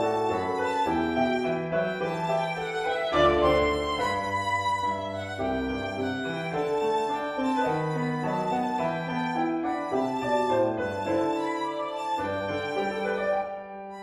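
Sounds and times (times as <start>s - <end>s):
piano accompaniment: 0.0s - 14.0s
solo violin melody: 0.0s - 14.0s.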